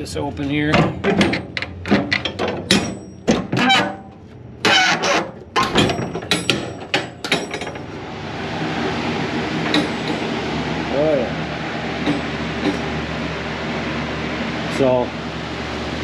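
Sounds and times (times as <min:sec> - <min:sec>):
kiln door clicks and scrapes: 0:00.8 - 0:07.8
steady rushing noise: 0:07.9 - 0:16.0.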